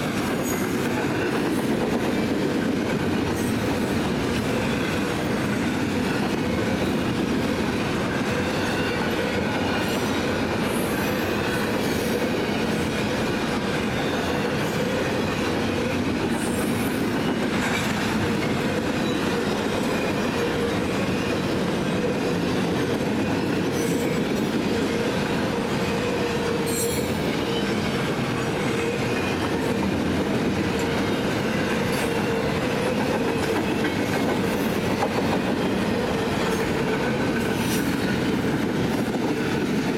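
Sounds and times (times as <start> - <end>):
freight train wheels rumbling: 0.0 - 39.9.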